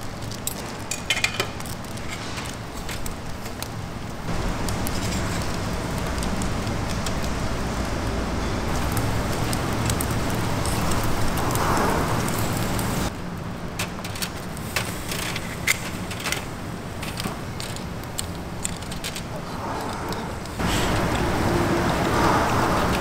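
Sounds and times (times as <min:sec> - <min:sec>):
shellfish sizzling on grill: 0:00.0 - 0:19.1
sharp crackles and clicks: 0:00.0 - 0:23.0.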